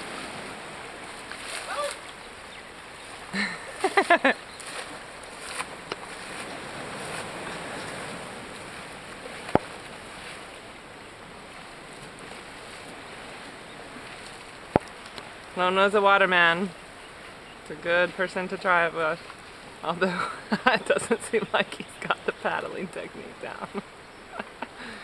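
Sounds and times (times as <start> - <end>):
small waves lapping: 0.0 - 25.0
wind: 0.0 - 25.0.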